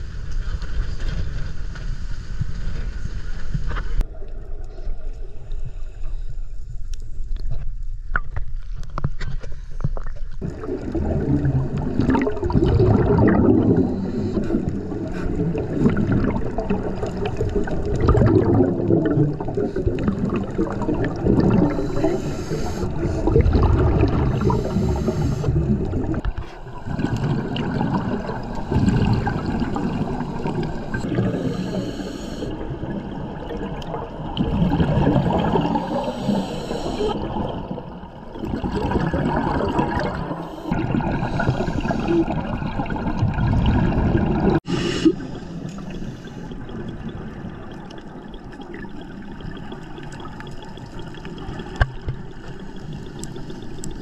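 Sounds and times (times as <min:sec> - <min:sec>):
bubbles gurgling underwater: 0:10.4 - 0:31.8, 0:32.5 - 0:54.0
regulator inhale hiss: 0:21.7 - 0:23.4, 0:24.4 - 0:25.8, 0:31.0 - 0:32.6, 0:35.5 - 0:37.2, 0:40.4 - 0:42.2, 0:44.6 - 0:46.7.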